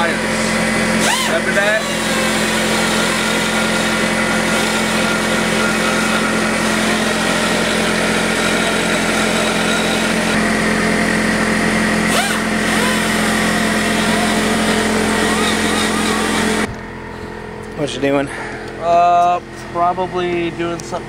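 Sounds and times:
pneumatic die grinder grinding metal: 0.0 - 16.7.

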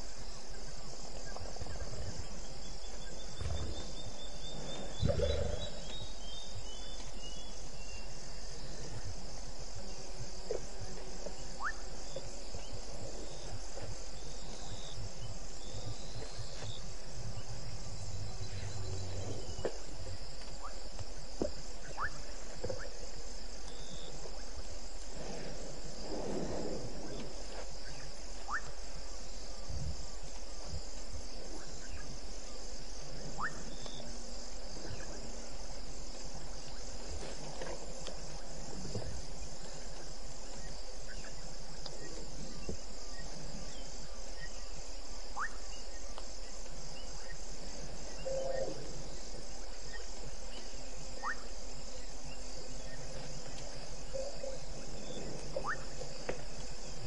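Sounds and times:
insects trilling: 0.0 - 57.0
low steady hum: 0.0 - 57.0
faint chirps and clicks: 2.8 - 7.5, 23.6 - 25.1, 33.4 - 34.1, 39.5 - 43.8, 45.3 - 47.4, 49.8 - 51.5, 52.3 - 57.0.

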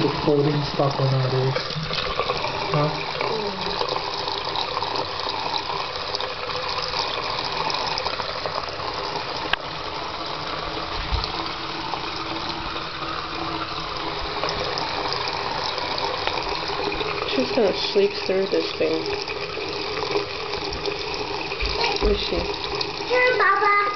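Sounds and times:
tap water splashing into basin: 0.0 - 23.9.

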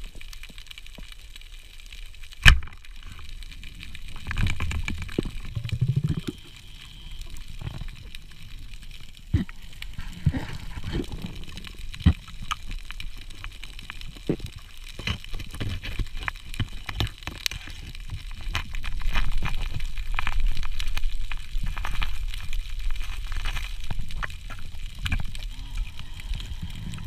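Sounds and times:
scattered clicks and crackles: 0.0 - 27.0
water sloshing and gurgling: 2.4 - 13.4.

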